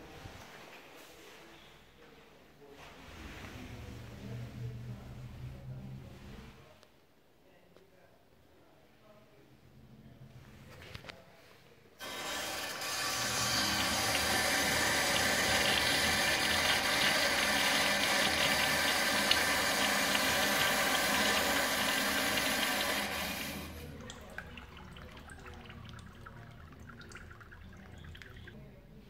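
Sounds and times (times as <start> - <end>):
urinal flushing: 12.0 - 28.6
water trickling and dripping: 23.8 - 28.6.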